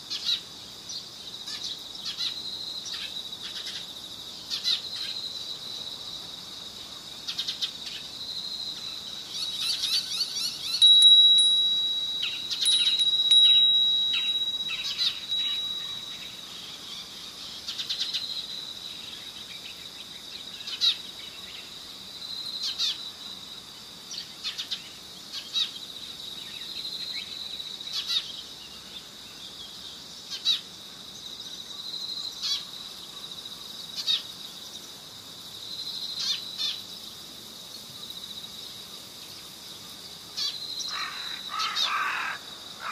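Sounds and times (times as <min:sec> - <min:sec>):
insect-like trill: 0:07.3 - 0:19.3
high-pitched chirps: 0:10.2 - 0:16.4
held high tone: 0:10.8 - 0:16.4.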